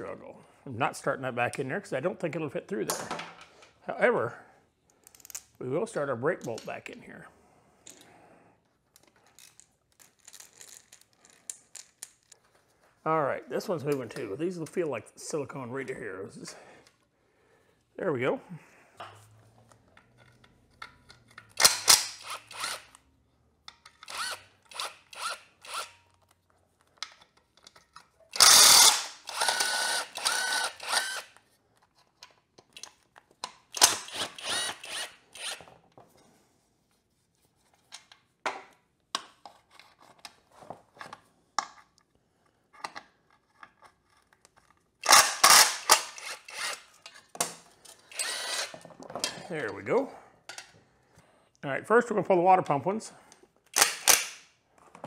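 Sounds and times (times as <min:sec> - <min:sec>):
cordless impact driver running: 0:24.1 - 0:25.9, 0:28.4 - 0:31.3, 0:33.8 - 0:35.6, 0:48.2 - 0:48.7.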